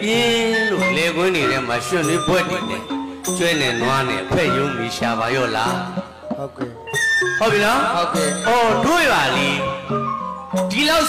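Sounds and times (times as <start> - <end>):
traditional ensemble music: 0.0 - 11.0.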